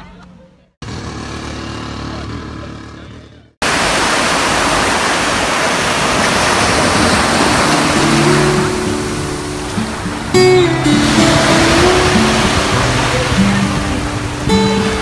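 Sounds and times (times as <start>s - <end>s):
waves breaking on beach: 3.6s - 15.0s
faint guitar music: 7.5s - 15.0s.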